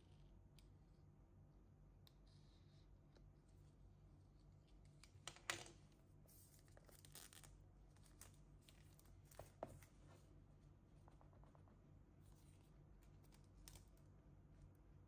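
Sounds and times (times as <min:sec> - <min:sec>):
plastic wrap crinkling and tearing: 0:06.6 - 0:09.6.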